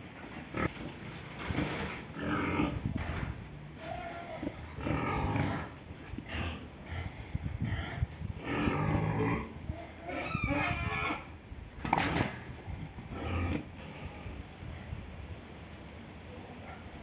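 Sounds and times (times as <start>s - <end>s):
pig grunting: 2.0s - 3.1s, 4.0s - 11.3s, 13.0s - 14.4s
pig squealing: 8.4s - 11.3s.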